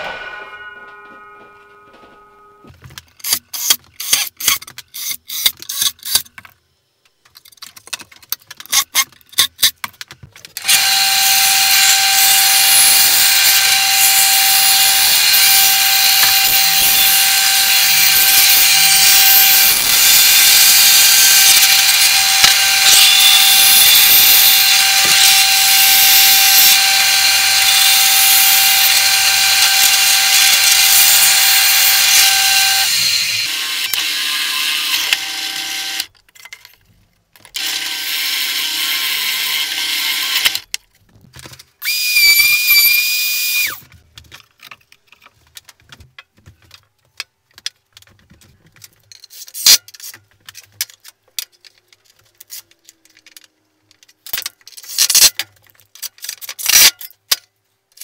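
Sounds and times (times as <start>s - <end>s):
high-pitched whine: 0.0s - 2.7s
wooden parts tapping and knocking: 0.9s - 10.7s, 43.8s - 58.0s
bandsaw cutting wood: 10.6s - 36.1s, 37.6s - 40.7s
drill press running: 10.6s - 36.1s.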